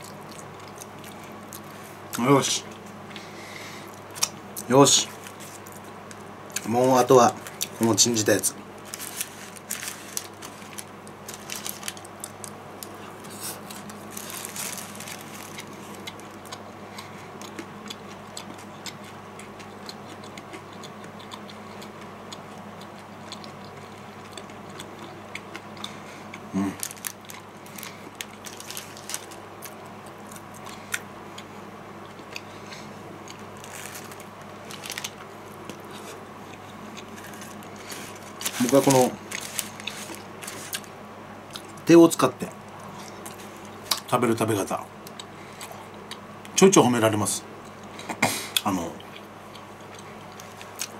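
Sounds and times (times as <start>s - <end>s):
faint steady hum: 0.0s - 50.9s
chewing: 11.7s - 40.9s, 49.0s - 50.9s.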